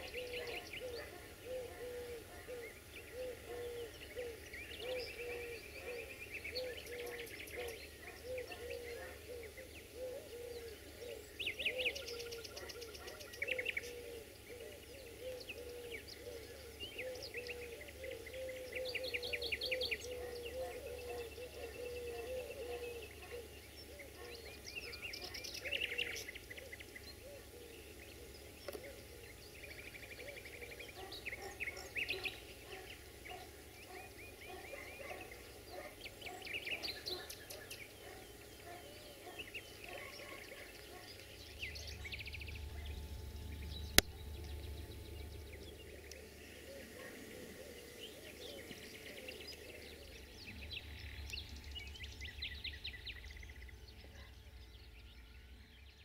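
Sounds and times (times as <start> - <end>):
birds chirping and trilling: 0.0 - 56.0.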